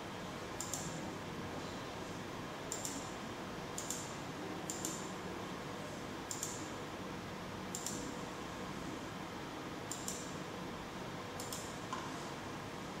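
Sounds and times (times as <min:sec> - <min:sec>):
steady background hiss: 0:00.0 - 0:13.0
computer mouse button clicking: 0:09.9 - 0:10.3, 0:11.4 - 0:11.7.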